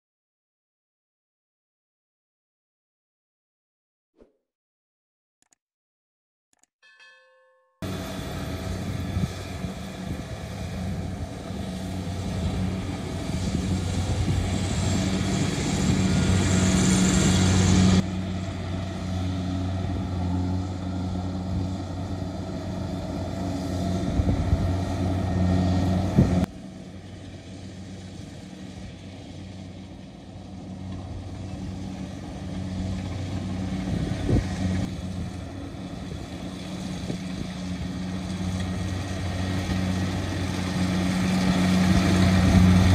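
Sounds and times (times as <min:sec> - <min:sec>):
rushing mechanical noise: 0:07.8 - 0:29.5
combine harvester engine running: 0:07.8 - 0:42.9.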